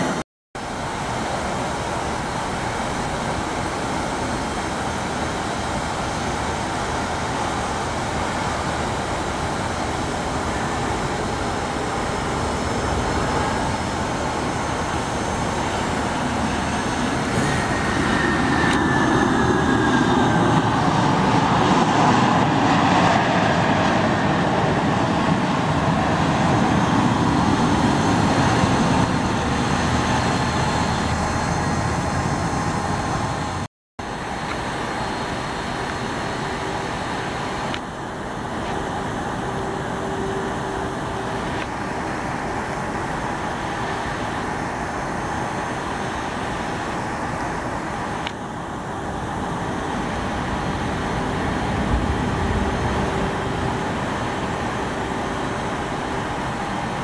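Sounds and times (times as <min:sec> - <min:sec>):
falling jet whine: 0:00.0 - 0:57.0
jet engine rumble: 0:00.0 - 0:57.0.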